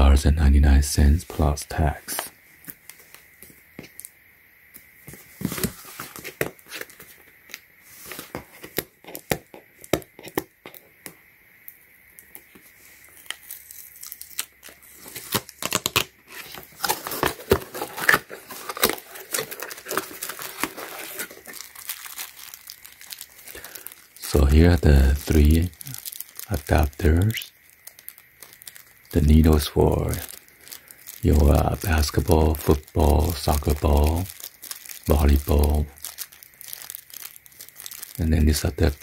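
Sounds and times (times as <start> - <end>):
plastic wrapping crinkling: 5.1 - 11.2, 12.2 - 39.0
cardboard tearing and scraping: 14.8 - 22.6.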